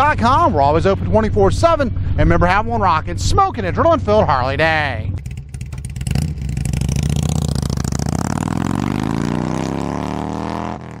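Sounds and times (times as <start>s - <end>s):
motorcycle engine revving: 5.1s - 11.0s.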